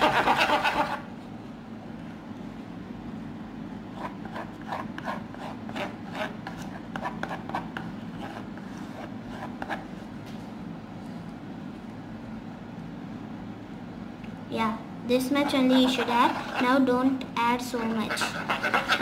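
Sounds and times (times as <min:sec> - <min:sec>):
spoon scraping a plastic bowl: 0:15.4 - 0:16.7, 0:17.8 - 0:19.0.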